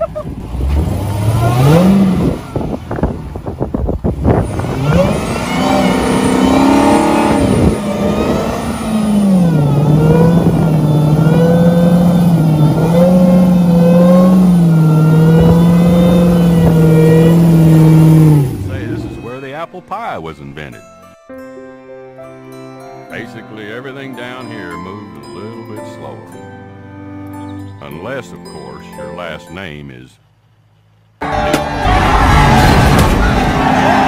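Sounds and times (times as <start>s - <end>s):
car engine at high revs: 0.0s - 19.2s.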